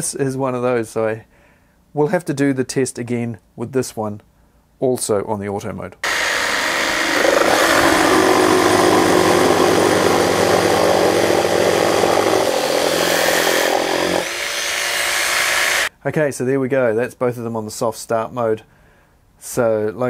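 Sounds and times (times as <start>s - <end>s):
jigsaws cutting timber: 6.0s - 15.9s.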